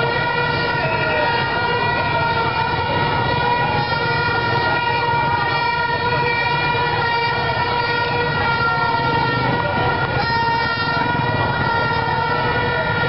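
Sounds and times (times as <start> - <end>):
horn holding steady tone: 0.0 - 13.0
motorcycles passing: 0.0 - 13.0
street crowd noise: 0.0 - 13.0.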